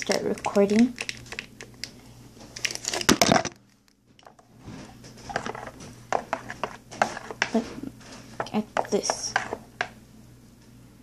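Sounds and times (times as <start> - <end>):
slime crackle: 0.0 - 3.2.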